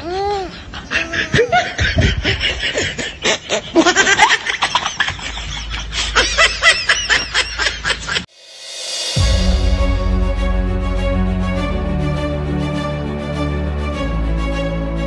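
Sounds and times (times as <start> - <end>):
person laughing and giggling: 0.0 - 8.3.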